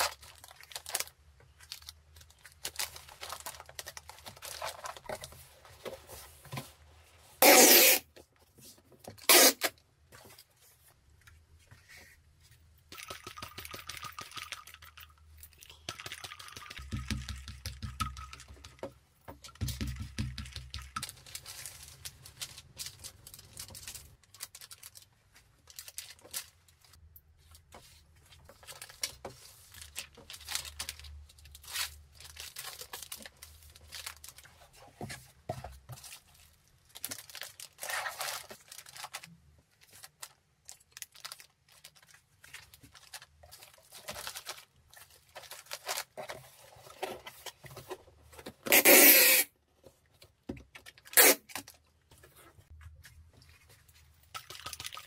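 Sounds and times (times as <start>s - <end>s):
paper and bubble wrap rustling: 0.0s - 11.0s, 21.0s - 49.4s
packing tape screech: 7.4s - 8.1s, 9.2s - 9.7s, 48.7s - 49.5s, 51.1s - 51.6s.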